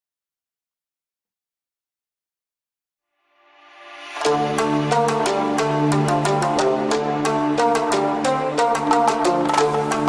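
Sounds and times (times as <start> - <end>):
music with percussive beat: 4.2 - 10.0.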